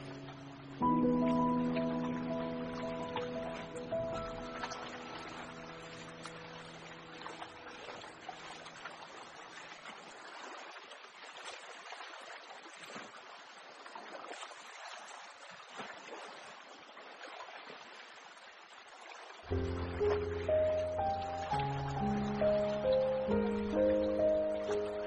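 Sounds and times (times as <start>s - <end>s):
background music: 0.0s - 7.4s, 19.5s - 25.0s.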